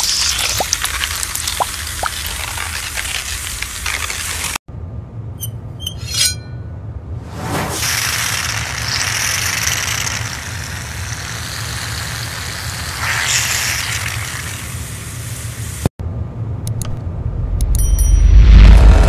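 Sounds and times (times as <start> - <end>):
hot knife sizzling: 0.0 - 4.6, 7.7 - 15.9.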